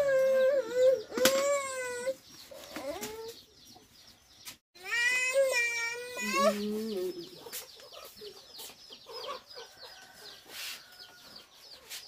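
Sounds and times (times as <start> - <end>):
chicks peeping: 2.1 - 4.6, 6.2 - 12.0
chickens clucking: 6.3 - 12.0.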